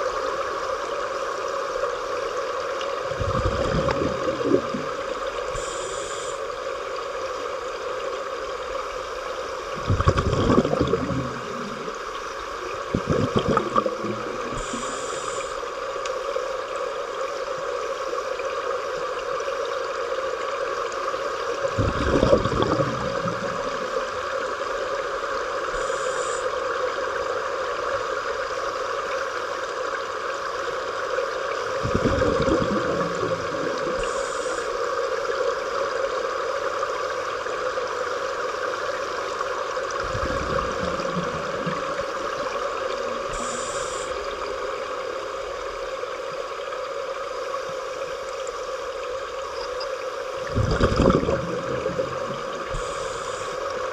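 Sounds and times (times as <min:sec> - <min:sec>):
underwater water hum and hiss: 0:00.0 - 0:53.9
scuba diver exhaled bubbles gurgling: 0:02.8 - 0:06.4, 0:09.6 - 0:15.7, 0:21.5 - 0:26.4, 0:31.4 - 0:35.3, 0:38.8 - 0:44.8, 0:50.4 - 0:53.9.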